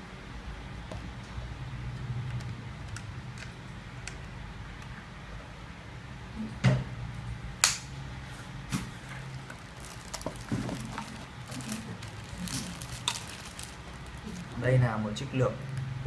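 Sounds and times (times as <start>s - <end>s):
plastic bag crinkling: 9.0s - 14.9s.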